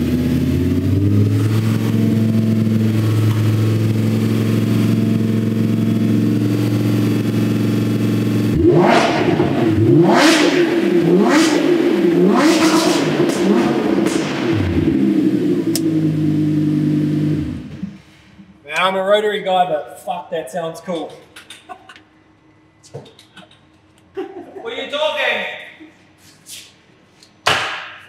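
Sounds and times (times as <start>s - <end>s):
sports car engine idling and revving: 0.0s - 18.0s.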